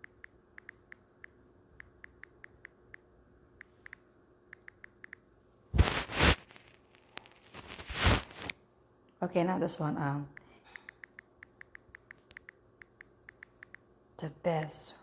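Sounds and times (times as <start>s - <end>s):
on-screen keyboard clicks: 0.0s - 5.2s, 10.4s - 13.8s.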